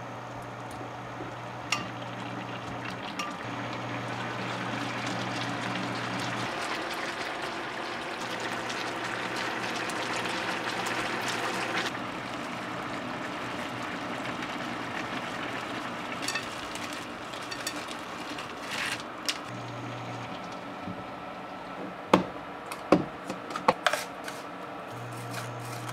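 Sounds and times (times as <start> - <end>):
food simmering in sauce: 1.9 - 17.2.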